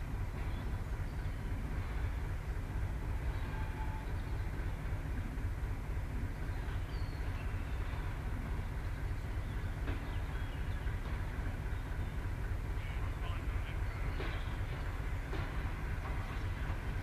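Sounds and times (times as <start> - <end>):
diesel engine idling: 0.0 - 17.0
faint clicks of rolling wagon: 0.0 - 17.0.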